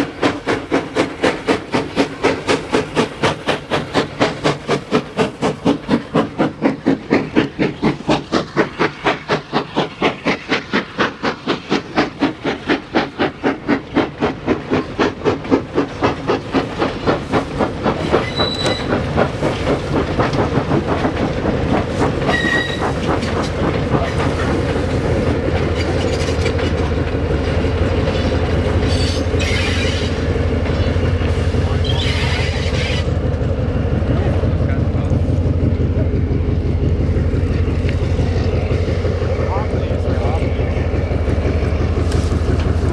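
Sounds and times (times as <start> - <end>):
diesel locomotive rumble: 0.0 - 42.9
steam locomotive exhaust beats: 0.0 - 42.9
train wagons rumbling and clattering: 0.0 - 42.9
wheels squealing: 18.0 - 19.0, 22.2 - 23.3, 28.0 - 31.0, 31.6 - 33.1.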